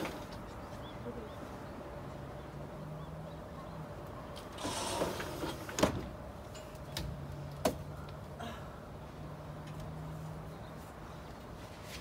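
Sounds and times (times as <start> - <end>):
sliding door rolling open: 4.4 - 6.2.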